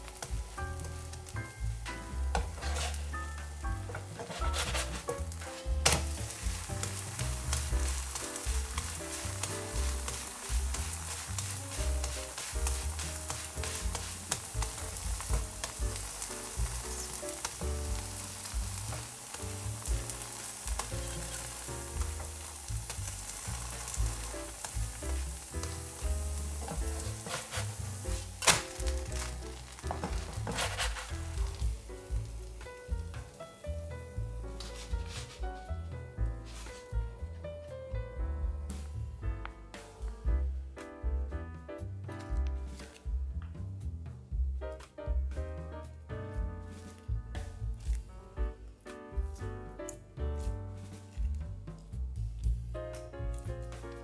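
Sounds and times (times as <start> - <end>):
batter sizzling in oil: 0.0 - 35.8
background music: 0.0 - 54.0.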